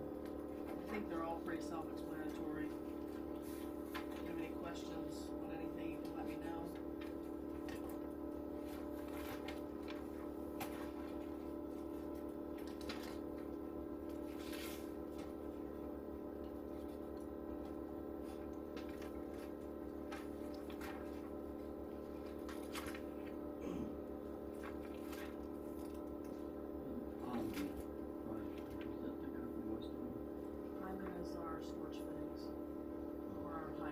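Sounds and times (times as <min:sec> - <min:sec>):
machine humming: 0:00.0 - 0:33.9
paper pages being turned: 0:08.6 - 0:13.5, 0:14.1 - 0:15.4, 0:22.0 - 0:23.4.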